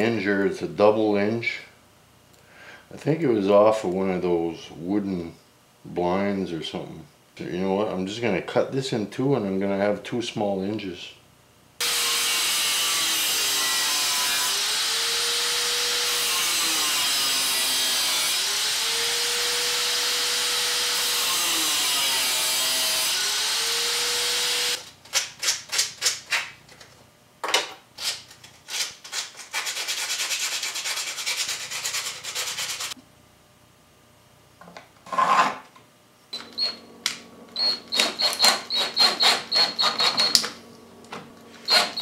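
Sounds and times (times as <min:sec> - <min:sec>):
angle grinder cutting metal: 0:11.8 - 0:24.8, 0:37.5 - 0:40.4, 0:41.6 - 0:42.0.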